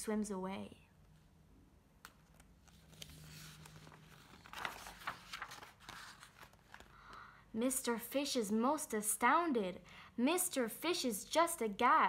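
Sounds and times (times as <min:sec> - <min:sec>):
book page turning: 0:02.0 - 0:07.2.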